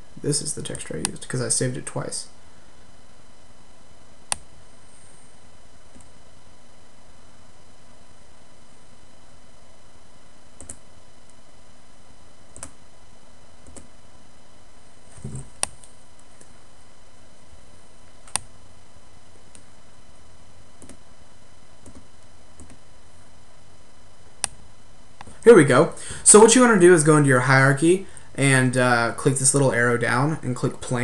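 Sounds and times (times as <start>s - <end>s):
computer mouse clicks: 4.3s - 4.5s, 10.6s - 10.8s, 12.6s - 12.8s, 20.8s - 21.0s, 24.4s - 24.6s
steady hiss: 24.4s - 31.0s.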